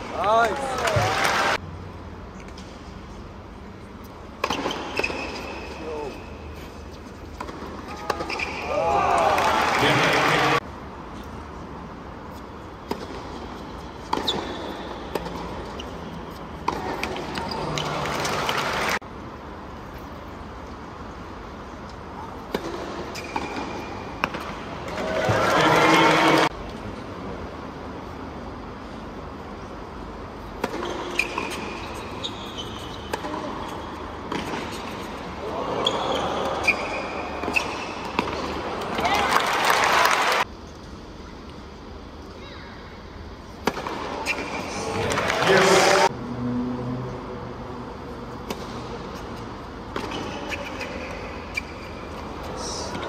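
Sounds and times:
shoes squeaking on court: 0:03.8 - 0:08.7, 0:12.3 - 0:18.8, 0:22.6 - 0:24.2, 0:30.6 - 0:39.1, 0:43.5 - 0:46.0, 0:48.3 - 0:53.0
quiet crowd hum: 0:40.4 - 0:53.0.

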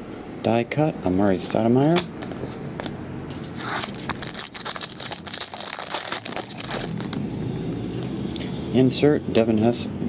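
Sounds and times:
foil wrapper tearing and crinkling: 0:03.6 - 0:07.2.

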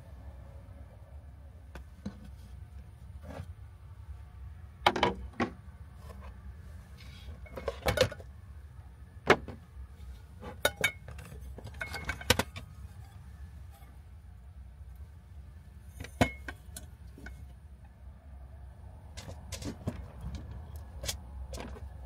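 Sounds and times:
low steady hum: 0:00.0 - 0:22.0
metal pot and lids clinking: 0:10.5 - 0:12.6.

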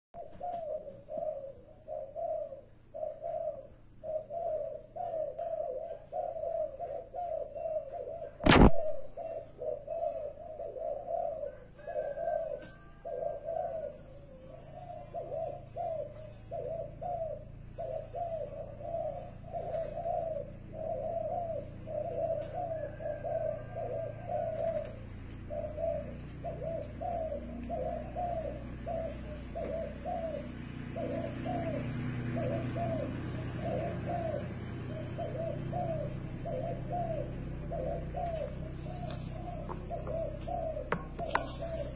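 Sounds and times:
dove cooing: 0:00.2 - 0:41.9
sharp click: 0:08.4 - 0:09.0.

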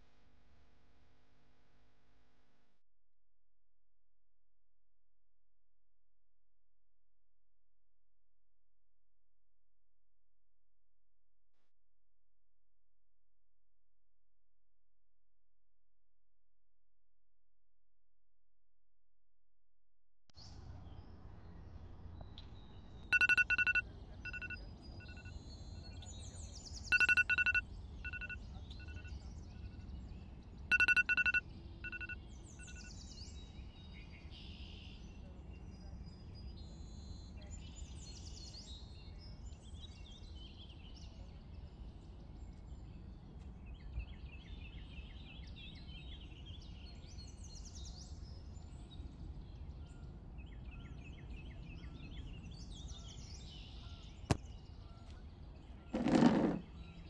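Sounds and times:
phone alert beeps with echoes: 0:23.2 - 0:25.2, 0:26.9 - 0:28.4, 0:30.7 - 0:32.2.

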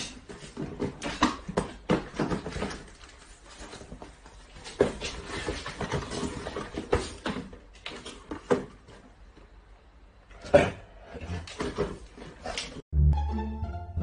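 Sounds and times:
cardboard boxes knocking: 0:00.4 - 0:03.0.

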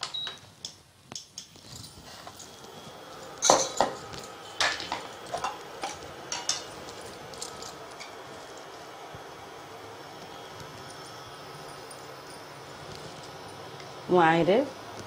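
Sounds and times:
metal utensils clinking: 0:01.2 - 0:08.2.

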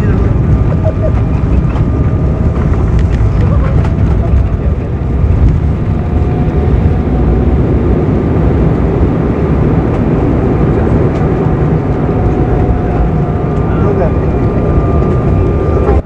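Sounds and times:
aircraft engines and wheels rumbling: 0:00.0 - 0:16.0.

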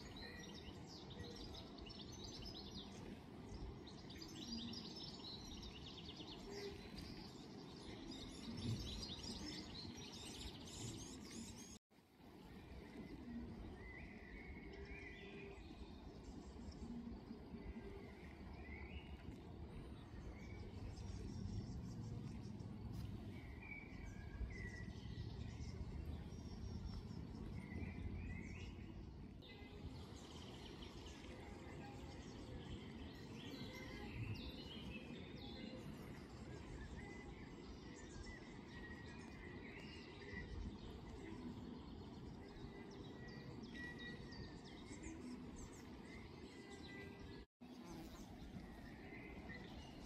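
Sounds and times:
small birds chirping: 0:00.0 - 0:11.8, 0:12.4 - 0:50.0
low steady background noise: 0:00.0 - 0:50.0.

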